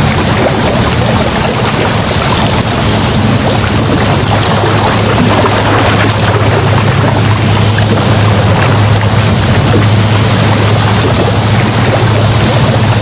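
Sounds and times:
low steady hum: 0:00.0 - 0:13.0
sea waves rushing: 0:00.0 - 0:13.0.

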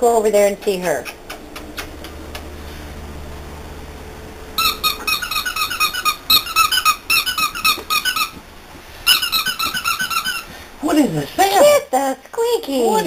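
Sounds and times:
squeaky dog toy squeaking: 0:04.6 - 0:08.4, 0:09.1 - 0:10.5.

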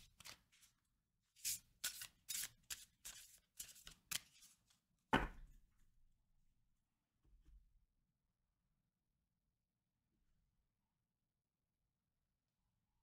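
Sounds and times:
cards being shuffled: 0:00.0 - 0:00.8, 0:01.4 - 0:04.8.

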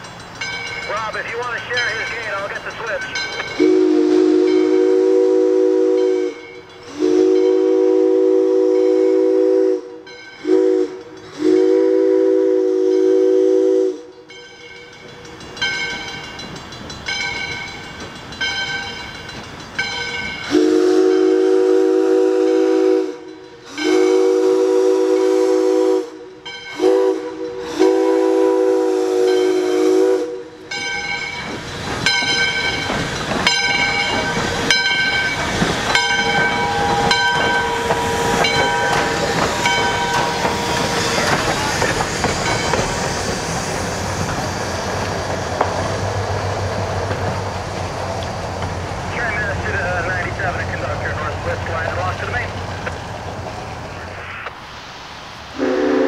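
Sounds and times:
bell ringing: 0:00.0 - 0:03.6, 0:33.5 - 0:40.4
steam locomotive chime whistle: 0:00.4 - 0:16.5, 0:17.1 - 0:32.9, 0:33.5 - 0:42.9, 0:55.6 - 0:56.0.

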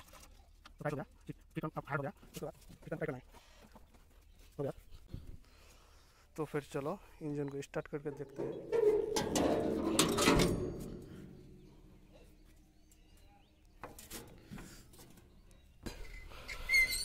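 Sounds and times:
metal hood clicks and knocks: 0:08.2 - 0:11.7.

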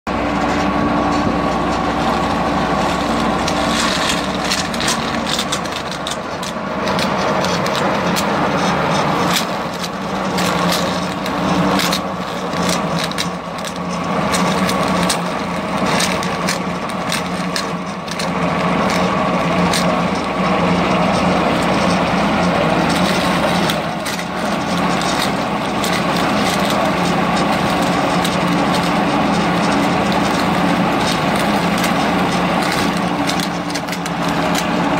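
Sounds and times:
engine and extruder running: 0:00.1 - 0:34.9
sharp clicks and crackles: 0:00.4 - 0:34.9.

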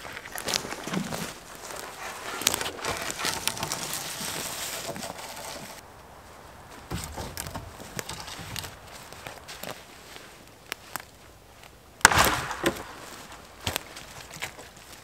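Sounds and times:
dry twigs snapping: 0:00.0 - 0:05.8, 0:06.7 - 0:15.0
footsteps on forest floor: 0:00.0 - 0:15.0
rustling needles and leaves: 0:00.0 - 0:15.0
branch knocking: 0:06.8 - 0:09.8, 0:12.0 - 0:14.8.

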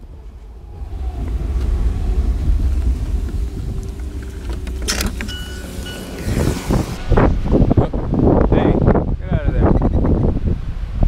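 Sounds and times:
car engine and road rumble: 0:00.0 - 0:11.0
high steady tone: 0:02.4 - 0:07.0.

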